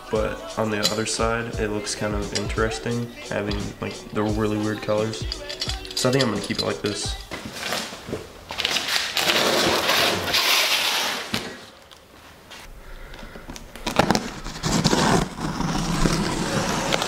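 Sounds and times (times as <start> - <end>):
cardboard scraping and rustling: 7.3 - 11.6, 13.8 - 17.0.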